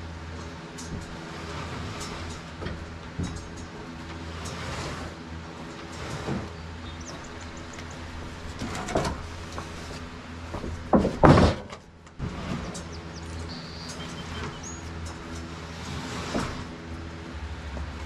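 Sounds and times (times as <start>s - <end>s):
loud wooden clatter: 0.8s - 16.9s
wooden boards scraping: 0.9s - 17.0s
boards knocking against lumber: 6.2s - 12.8s
small engine running: 12.2s - 18.0s.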